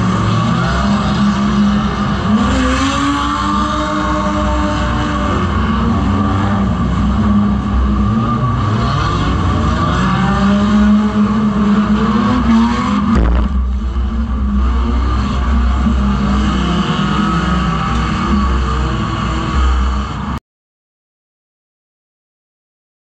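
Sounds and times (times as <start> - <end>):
racing car engine: 0.0 - 20.4.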